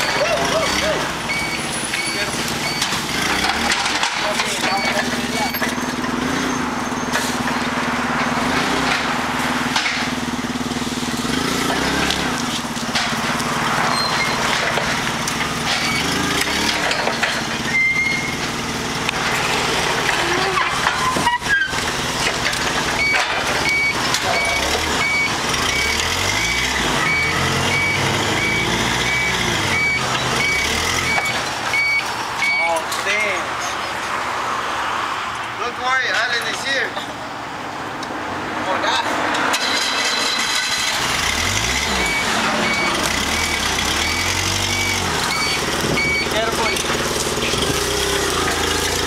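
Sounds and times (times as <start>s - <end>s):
reversing alarm beeping: 0.0s - 3.6s, 4.6s - 7.2s, 17.7s - 18.4s, 22.9s - 32.8s, 40.0s - 47.0s
forklift engine running: 0.0s - 34.2s, 39.2s - 49.0s.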